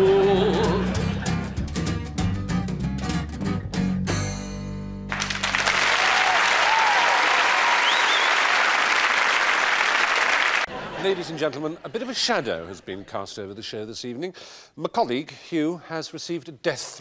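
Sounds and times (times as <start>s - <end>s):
lounge band playing: 0.0s - 4.3s
audience applauding: 5.1s - 11.2s.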